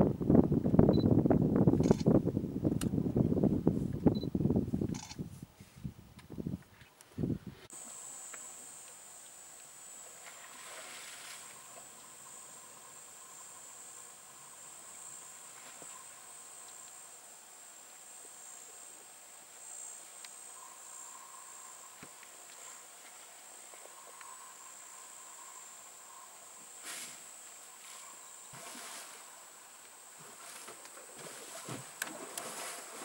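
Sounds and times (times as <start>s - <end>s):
insects chirring: 7.7s - 33.0s.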